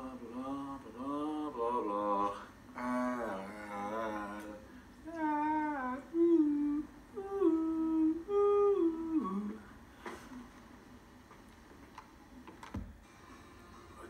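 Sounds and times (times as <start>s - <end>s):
man humming: 0.0s - 9.7s.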